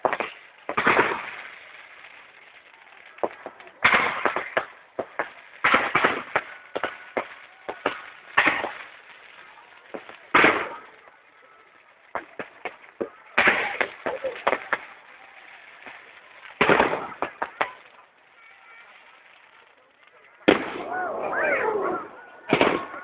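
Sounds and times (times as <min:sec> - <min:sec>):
fireworks bangs and crackles: 0:00.0 - 0:23.0.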